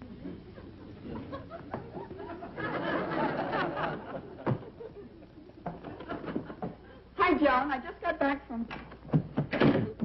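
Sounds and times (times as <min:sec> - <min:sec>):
audience laughing: 0:00.3 - 0:07.0.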